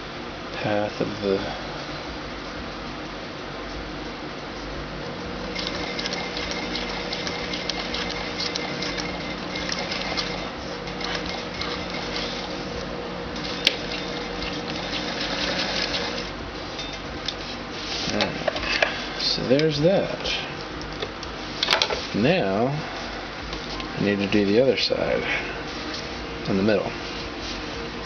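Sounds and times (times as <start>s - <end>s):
sewing machine stitching: 5.5s - 12.5s, 13.4s - 16.3s.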